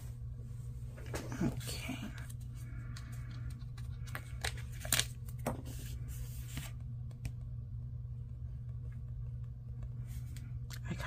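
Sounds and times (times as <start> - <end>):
steady low hum: 0.0 - 11.0
paper rustling and crinkling: 2.2 - 6.8.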